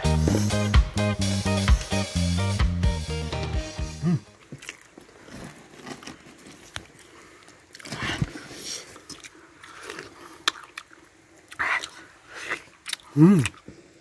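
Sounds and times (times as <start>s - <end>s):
man chewing wet mouth noises: 6.0s - 14.0s
sharp mouth clicks: 11.5s - 13.7s.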